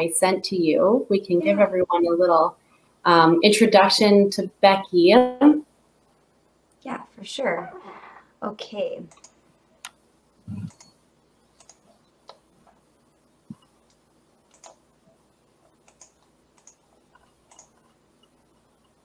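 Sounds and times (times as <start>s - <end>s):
computer mouse and keyboard clicks: 9.1s - 10.0s, 11.6s - 12.8s, 13.5s - 14.8s, 15.6s - 19.0s.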